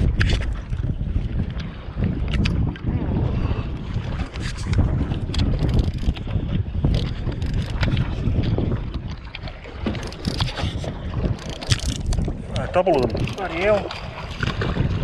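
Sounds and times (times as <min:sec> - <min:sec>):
wind buffeting microphone: 0:00.0 - 0:15.0
water splashing: 0:03.9 - 0:15.0.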